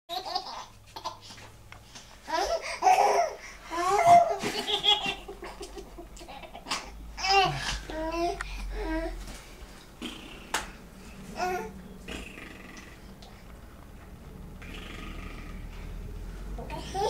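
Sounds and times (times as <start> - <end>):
baby giggling: 2.3 - 8.3.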